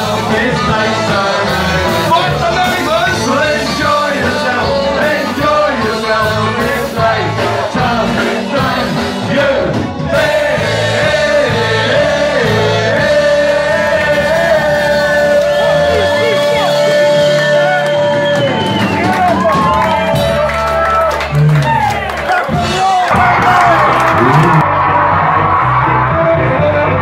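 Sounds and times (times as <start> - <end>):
person singing: 0.0 - 18.2
live ska band playing: 0.0 - 27.0.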